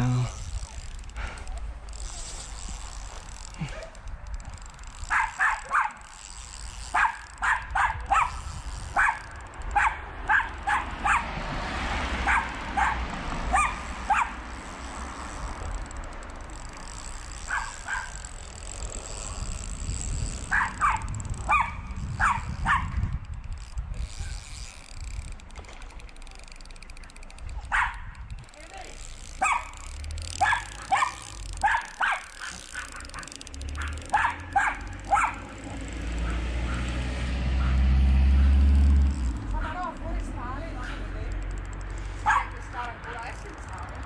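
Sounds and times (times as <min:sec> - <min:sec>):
dog barking: 0:05.1 - 0:06.0, 0:06.9 - 0:08.4, 0:09.0 - 0:09.2, 0:09.8 - 0:11.3, 0:12.2 - 0:14.3, 0:20.5 - 0:22.9, 0:27.7 - 0:28.0, 0:29.4 - 0:29.7, 0:30.4 - 0:35.5, 0:37.6 - 0:37.8, 0:42.2 - 0:42.5.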